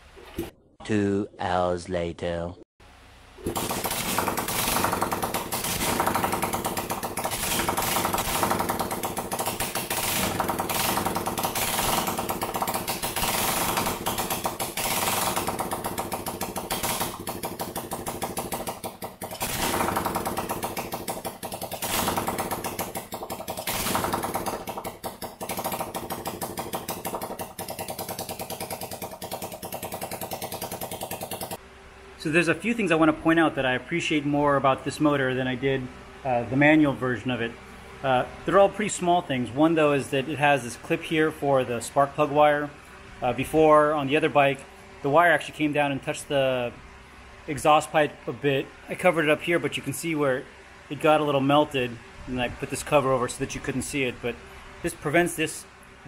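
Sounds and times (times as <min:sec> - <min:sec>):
motorcycle engine chugging and revving: 0:03.5 - 0:31.6.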